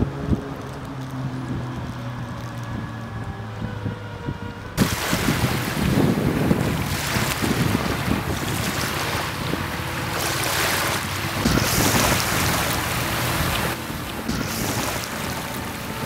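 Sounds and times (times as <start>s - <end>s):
wind buffeting microphone: 0.0s - 16.0s
small waves on pebbly shore: 4.8s - 16.0s.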